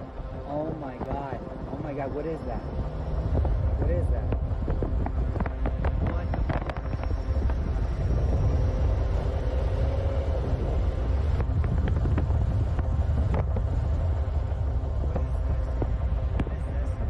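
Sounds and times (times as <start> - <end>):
car interior road and engine rumble: 0.0 - 17.0.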